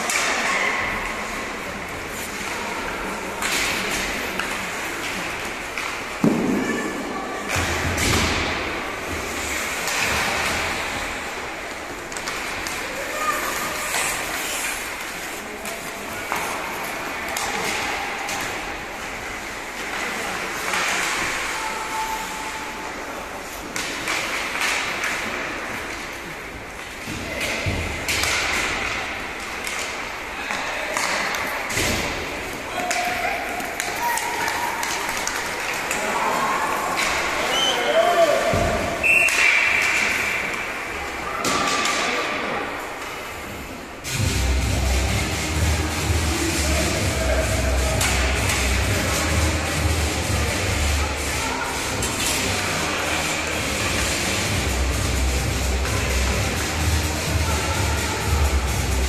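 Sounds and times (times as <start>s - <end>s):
impact against rink boards: 0.0s - 1.4s, 2.1s - 22.1s, 23.6s - 43.1s, 48.0s - 49.9s, 51.7s - 54.8s
hockey sticks and puck clacking: 0.0s - 59.0s
skate blades scraping ice: 9.0s - 17.8s.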